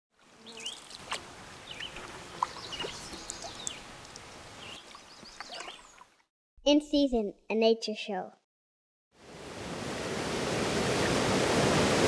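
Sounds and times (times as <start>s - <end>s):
birds chirping and calling: 1.6s - 3.9s, 4.6s - 6.0s.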